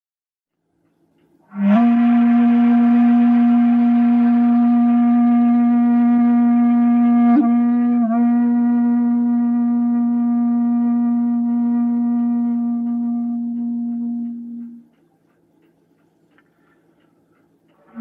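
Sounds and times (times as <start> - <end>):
bamboo flute long low note: 1.4 - 15.0.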